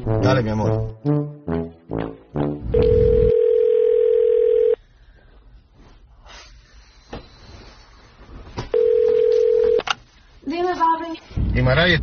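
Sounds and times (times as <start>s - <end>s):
telephone ringback tone: 2.8s - 4.8s, 8.8s - 9.8s.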